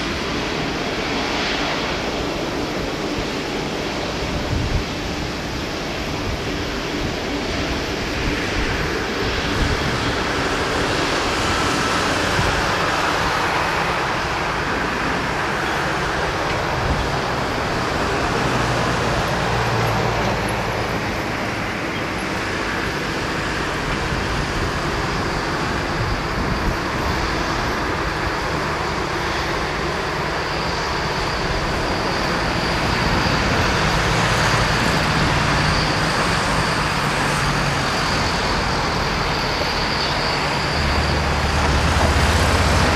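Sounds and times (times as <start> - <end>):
jet engine rumble and hiss: 0.0 - 42.9.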